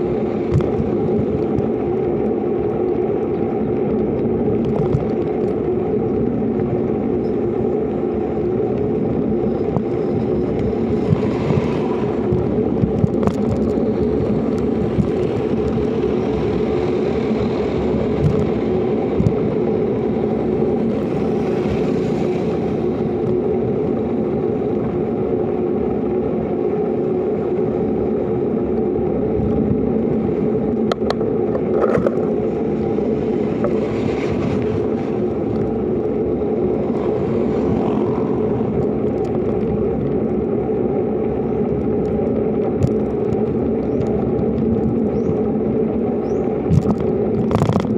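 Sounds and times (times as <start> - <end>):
motorcycle cruising: 0.0 - 47.9
road and wind noise: 0.0 - 47.9.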